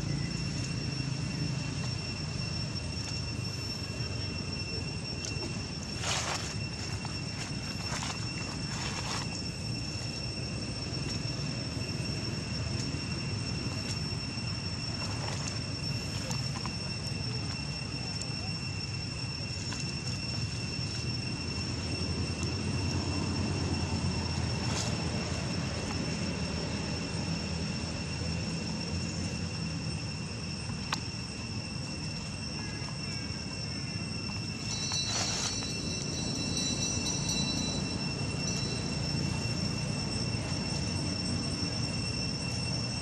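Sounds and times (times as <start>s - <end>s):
high-pitched insect drone: 0.0s - 43.0s
low continuous rumble: 0.0s - 43.0s
dry leaves rustling: 5.3s - 10.2s, 34.4s - 41.5s.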